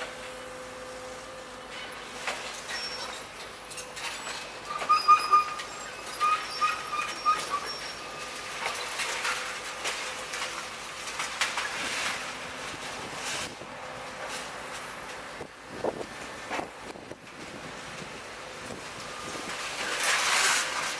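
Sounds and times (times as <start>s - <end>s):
excavator machine hum: 0.0s - 20.9s
high-pitched chirps or squeaks: 4.7s - 8.0s
debris knocks and crunches: 8.6s - 13.6s, 18.7s - 20.9s.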